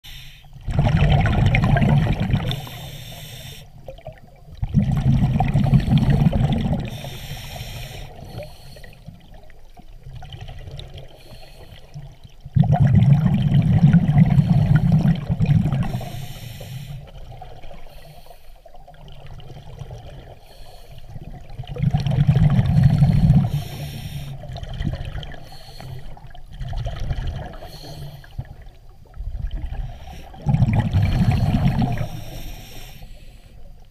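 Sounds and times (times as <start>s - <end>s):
rumbling bubbles exhalation: 0.6s - 2.8s, 3.8s - 7.2s, 9.1s - 11.2s, 11.8s - 16.2s, 18.8s - 20.4s, 21.1s - 32.4s.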